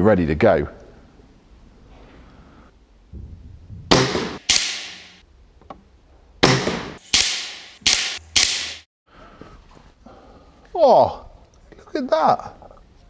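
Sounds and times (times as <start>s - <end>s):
air rifle firing: 3.9s - 5.2s, 6.4s - 8.8s.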